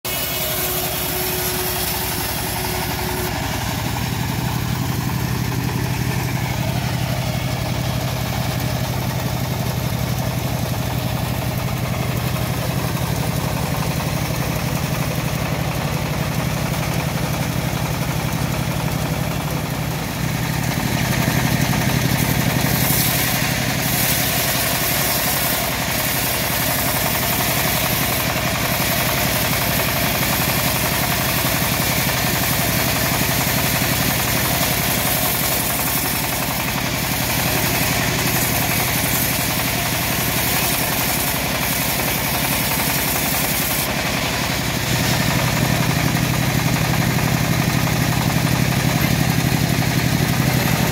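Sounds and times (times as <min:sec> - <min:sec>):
band saw blade cutting log: 0:00.0 - 0:50.9
diesel engine running steadily: 0:00.0 - 0:50.9.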